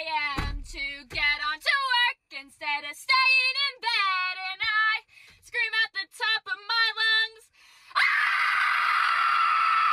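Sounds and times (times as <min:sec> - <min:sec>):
harsh sustained scream: 0:07.9 - 0:09.9.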